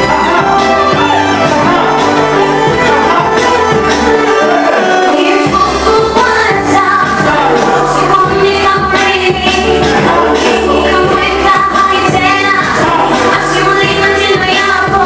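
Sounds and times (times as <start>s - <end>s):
amplified backing music: 0.0s - 15.0s
woman singing into microphone: 4.4s - 15.0s.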